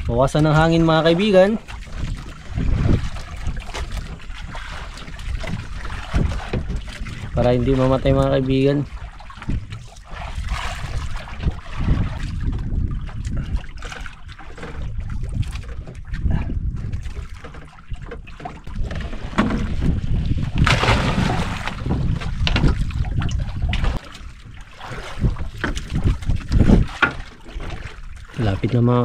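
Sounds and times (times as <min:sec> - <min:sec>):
water sounds: 0:00.0 - 0:29.0
wind rumbling on microphone: 0:00.0 - 0:29.0.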